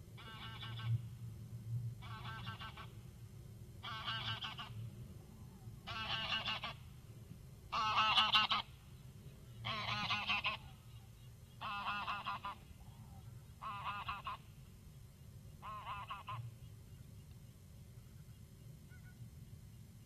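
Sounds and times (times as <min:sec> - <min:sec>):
geese honking: 0:00.2 - 0:01.0, 0:02.0 - 0:03.0, 0:03.8 - 0:04.8, 0:05.8 - 0:06.9, 0:07.7 - 0:08.8, 0:09.6 - 0:10.8, 0:11.6 - 0:12.8, 0:13.6 - 0:14.5, 0:15.6 - 0:16.5.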